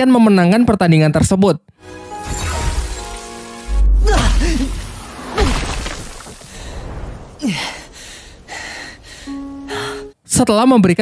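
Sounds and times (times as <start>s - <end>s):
falling groan: 3.7s - 5.7s.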